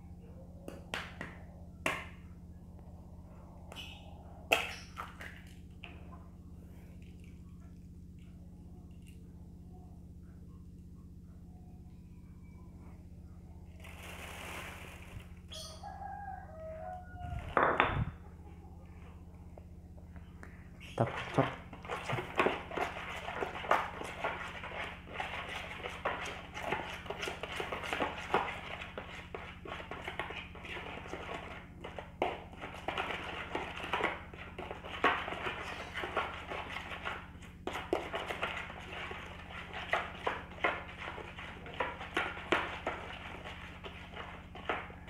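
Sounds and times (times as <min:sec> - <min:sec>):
spoon beating eggs in a bowl: 0:21.0 - 0:45.0.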